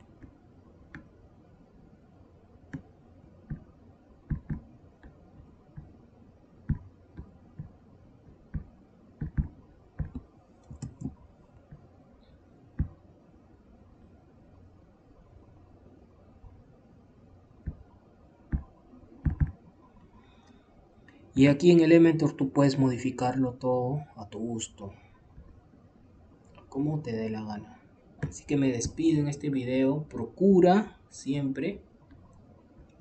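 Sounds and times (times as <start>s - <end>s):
faint background hiss: 0.0s - 33.0s
computer mouse clicking: 4.3s - 6.0s, 6.7s - 11.9s, 18.5s - 21.2s.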